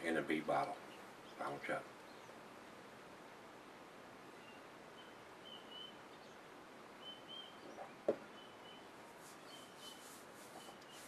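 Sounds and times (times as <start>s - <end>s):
faint high chirps: 7.0s - 11.0s.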